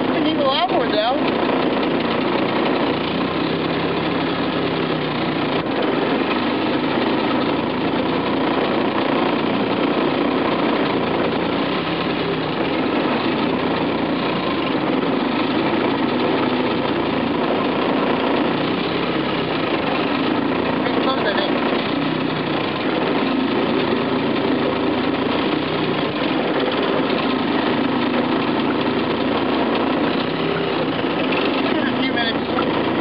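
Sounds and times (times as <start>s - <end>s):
outboard motor running: 0.0s - 33.0s.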